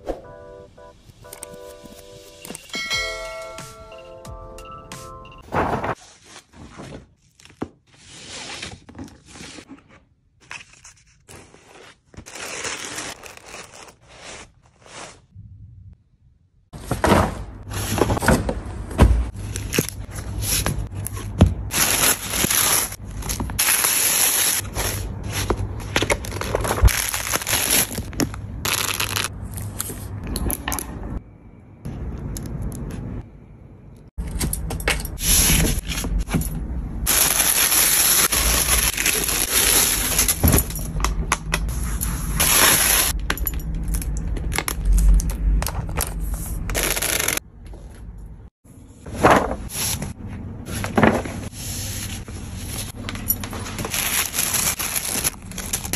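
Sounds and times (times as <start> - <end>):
paper crinkling and rustling: 5.4 - 15.3, 19.3 - 30.1, 37.1 - 40.8, 50.7 - 55.9.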